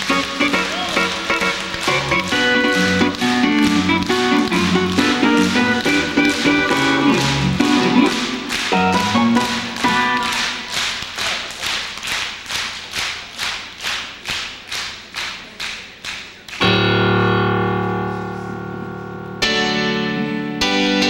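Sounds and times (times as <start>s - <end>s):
audience clapping in unison: 0.0s - 16.6s
sustained instrumental chord: 0.6s - 10.3s, 16.6s - 21.0s.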